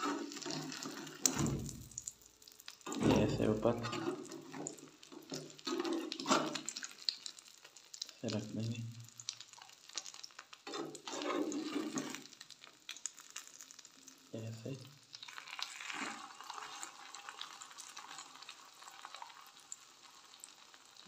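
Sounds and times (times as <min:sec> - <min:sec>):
spatula scraping a pan: 0:00.0 - 0:01.4, 0:02.9 - 0:06.8, 0:10.6 - 0:12.4, 0:15.8 - 0:17.0
omelette sizzling in pan: 0:00.0 - 0:21.0.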